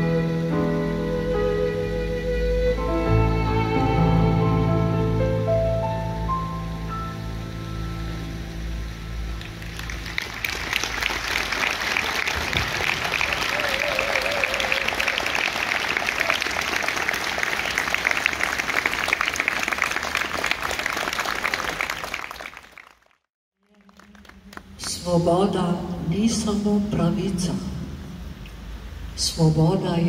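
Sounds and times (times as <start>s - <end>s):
audience applauding: 9.4s - 24.9s.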